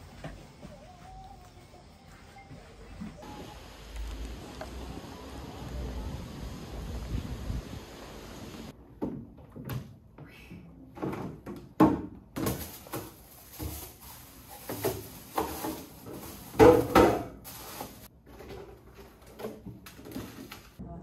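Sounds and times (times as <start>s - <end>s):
objects knocking and scraping: 10.9s - 20.8s.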